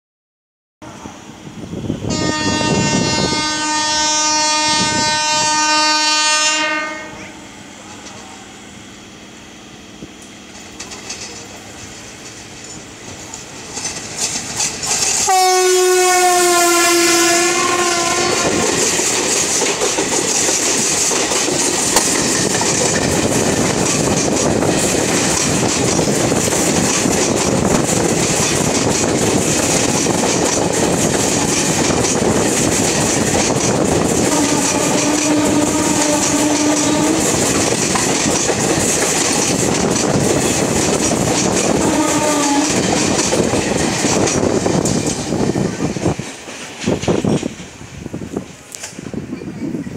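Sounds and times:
locomotive horn blast: 2.0s - 7.5s, 15.2s - 18.8s, 34.0s - 37.5s, 41.6s - 42.9s
train wheels clattering on rails: 10.2s - 49.9s.

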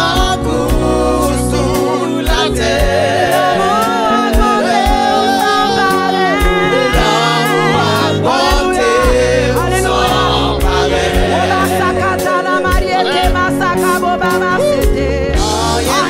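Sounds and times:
bass: 0.0s - 16.0s
gospel singing: 0.0s - 16.0s
steady drum beat: 6.4s - 13.5s.

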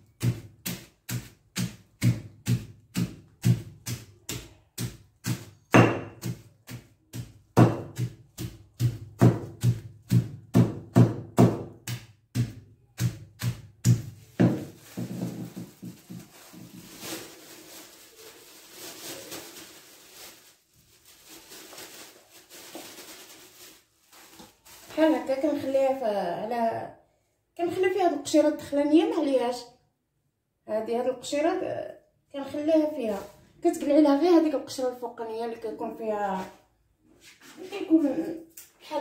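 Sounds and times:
garlic pounded in plastic bag: 0.0s - 25.7s
plastic bag rustling: 14.2s - 25.6s.

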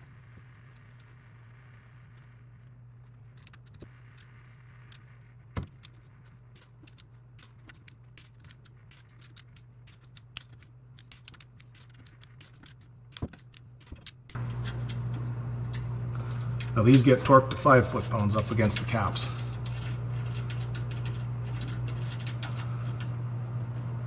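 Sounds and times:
low steady hum: 0.0s - 24.0s
hand ratchet clicking: 6.6s - 23.1s.

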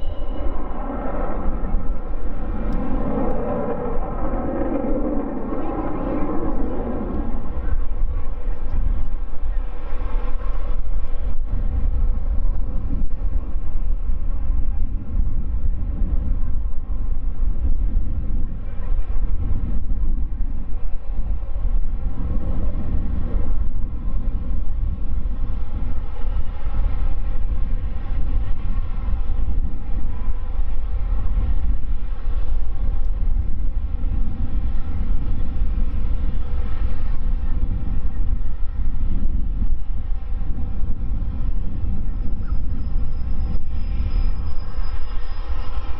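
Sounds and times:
jet engines rumbling and whining: 0.0s - 45.9s.

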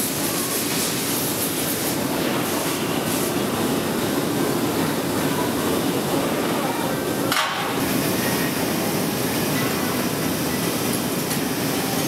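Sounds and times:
air blowers: 0.0s - 6.1s
furnaces roaring: 0.0s - 12.0s.

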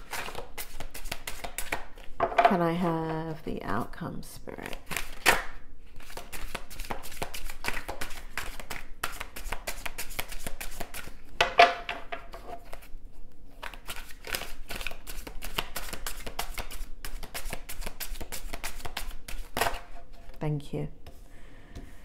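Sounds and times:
cards being shuffled: 0.0s - 2.2s, 4.6s - 11.2s, 13.5s - 20.4s.

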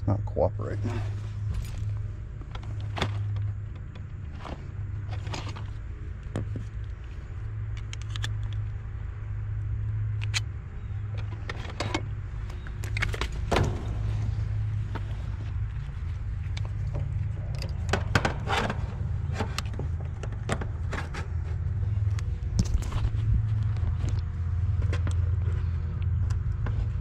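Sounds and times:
low hum: 0.0s - 27.0s.

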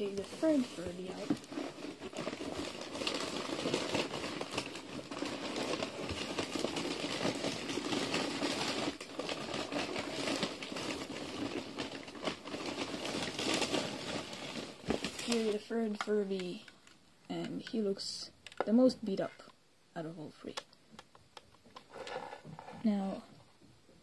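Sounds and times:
bubble wrap rustling and crinkling: 0.0s - 17.9s
small clicks and knocks: 18.4s - 18.8s.

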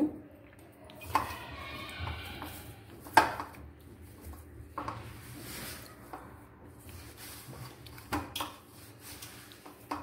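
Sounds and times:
hands kneading dough: 0.5s - 10.0s.

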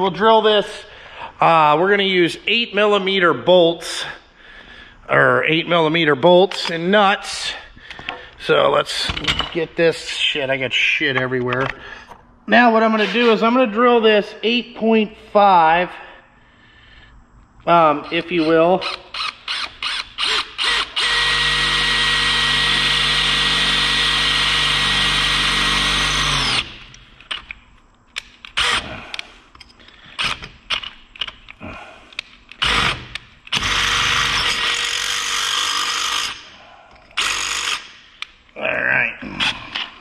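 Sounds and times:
cordless drill boring through metal: 18.0s - 26.9s, 28.6s - 28.9s, 32.6s - 36.5s, 37.2s - 37.9s.

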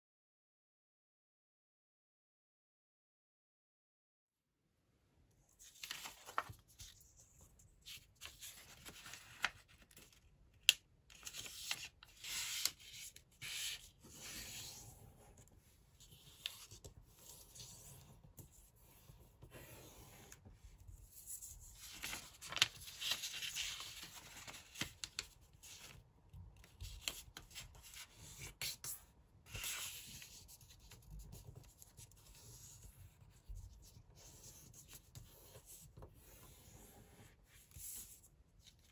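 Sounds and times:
paper rustling and rubbing: 5.6s - 10.2s, 19.4s - 25.9s.

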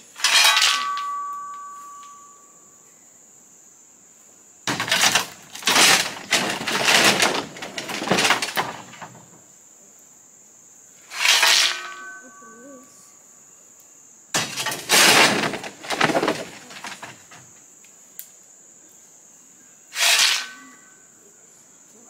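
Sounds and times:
shovel scraping gravel: 0.0s - 1.3s, 4.7s - 9.0s, 11.1s - 12.2s, 14.4s - 17.4s, 20.0s - 20.9s
shovel metallic ring: 0.2s - 2.6s, 11.2s - 12.5s, 20.0s - 21.0s
high insect buzz: 9.3s - 14.7s
gravel thrown onto ground: 14.4s - 17.4s.

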